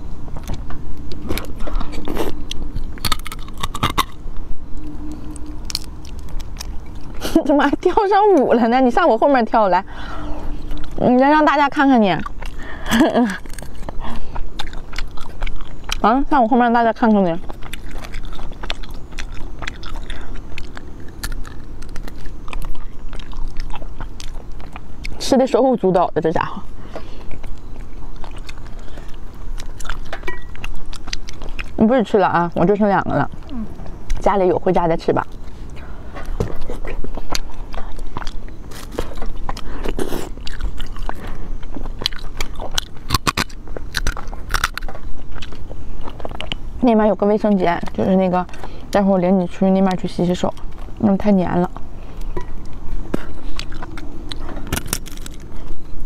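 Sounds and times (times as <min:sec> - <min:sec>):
lip smacks and chewing: 0:00.3 - 0:08.5, 0:10.2 - 0:11.0, 0:12.1 - 0:16.3, 0:17.3 - 0:25.3, 0:26.6 - 0:31.8, 0:35.2 - 0:46.8, 0:47.6 - 0:49.0, 0:51.6 - 0:56.0.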